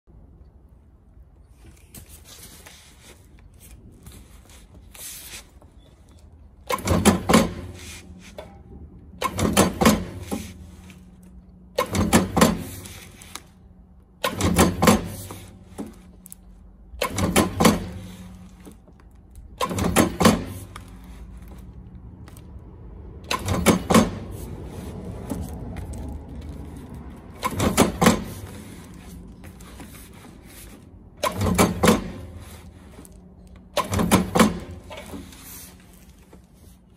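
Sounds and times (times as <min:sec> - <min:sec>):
stapling machine clatter: 0:06.6 - 0:08.6, 0:09.2 - 0:13.5, 0:14.2 - 0:21.7, 0:23.2 - 0:36.6.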